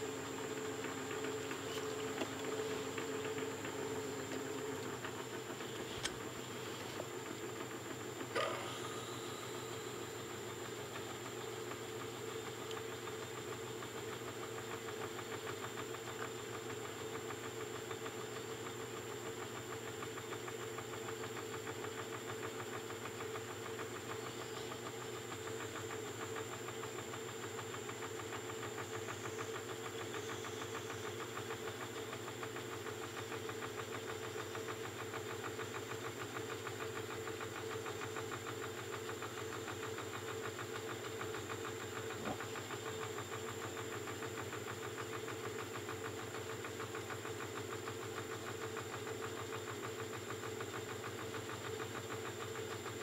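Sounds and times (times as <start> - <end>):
milling machine spindle running: 0.0 - 18.2.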